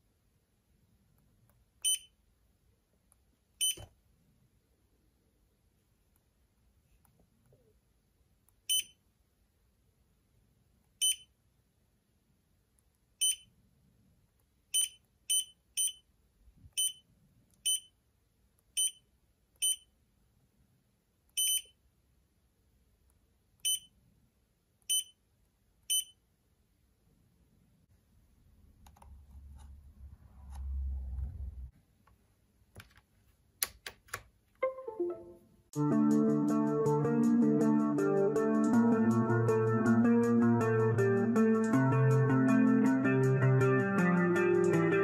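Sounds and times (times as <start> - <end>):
low handling rumble: 29.9 - 31.7
sharp clicks: 33.6 - 34.3.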